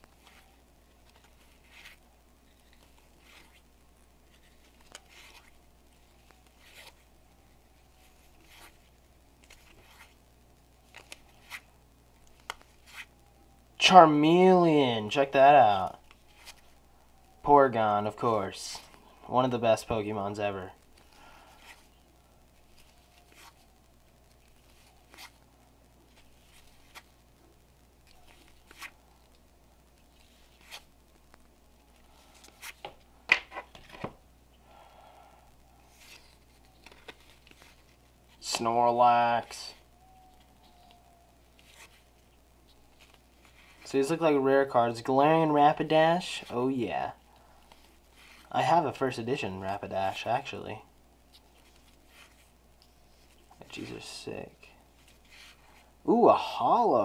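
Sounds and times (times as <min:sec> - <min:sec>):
cards swishing against cards: 0:00.0 - 0:07.1, 0:08.0 - 0:10.2, 0:12.3 - 0:13.1, 0:24.5 - 0:25.4, 0:35.8 - 0:38.6.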